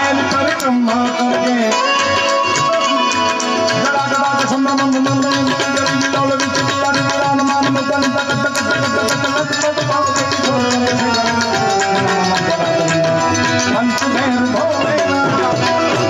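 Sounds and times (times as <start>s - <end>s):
sustained melody line: 0.0s - 16.0s
tabla drumming: 0.0s - 16.0s.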